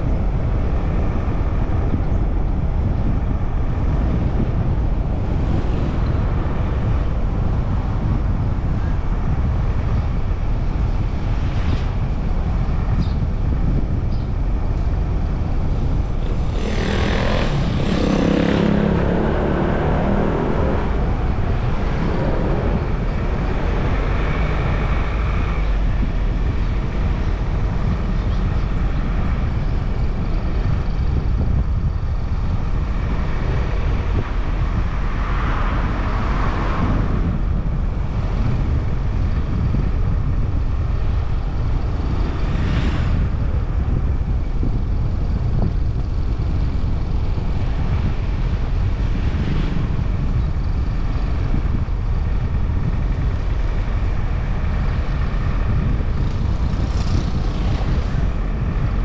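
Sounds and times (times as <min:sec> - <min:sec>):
car road and wind noise: 0:00.0 - 0:59.0.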